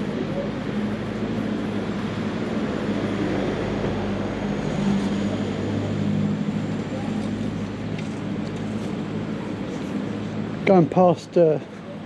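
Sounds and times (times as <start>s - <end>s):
street background hum: 0.0s - 12.0s.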